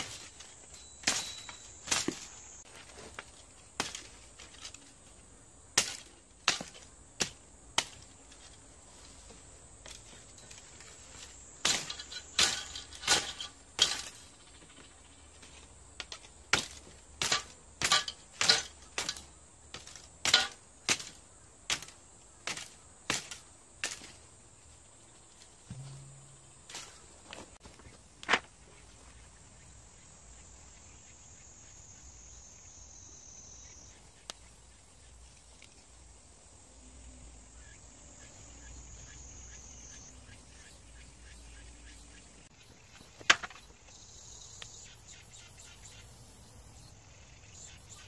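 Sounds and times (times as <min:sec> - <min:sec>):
sickle chopping bamboo: 0:01.0 - 0:02.3, 0:03.1 - 0:04.8, 0:05.7 - 0:08.5, 0:11.6 - 0:14.2, 0:16.0 - 0:24.2, 0:25.7 - 0:27.0.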